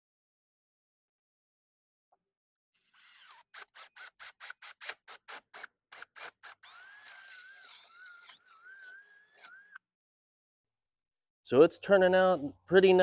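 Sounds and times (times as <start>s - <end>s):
cordless drill boring into plastic: 2.8s - 9.8s.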